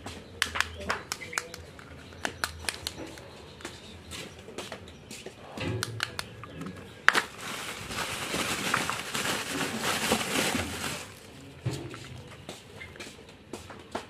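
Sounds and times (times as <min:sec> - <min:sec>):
bubble wrap crinkling: 0:07.1 - 0:11.5
steady crackle: 0:07.1 - 0:11.5.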